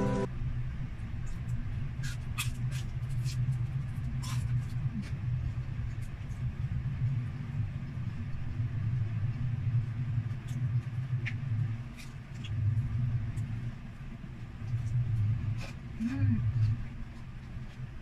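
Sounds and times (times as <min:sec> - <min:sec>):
crunchy chewing: 0:01.2 - 0:05.2
steady low hum: 0:02.6 - 0:18.0.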